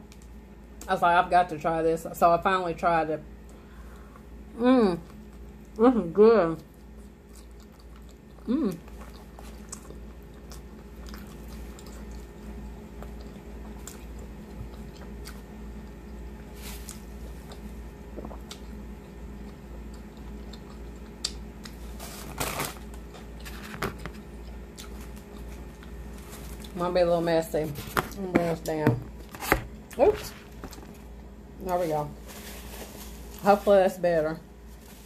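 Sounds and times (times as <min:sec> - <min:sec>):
chewing and biting food: 0:06.7 - 0:22.0, 0:22.8 - 0:26.8.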